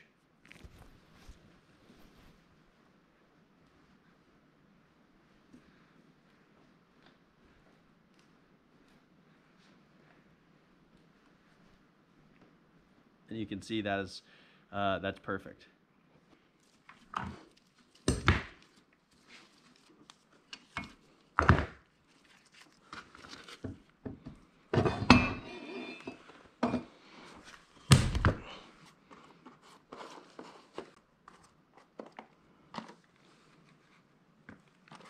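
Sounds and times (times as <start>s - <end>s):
metal parts thunking on wooden bench: 24.7s - 26.9s.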